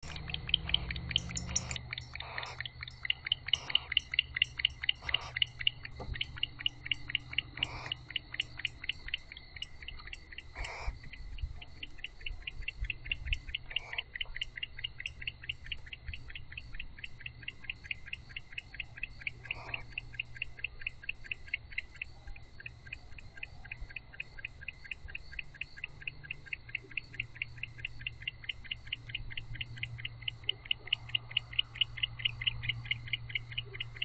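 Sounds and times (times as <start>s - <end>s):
cricket chirping: 0.0s - 34.0s
steady low hum: 0.0s - 34.0s.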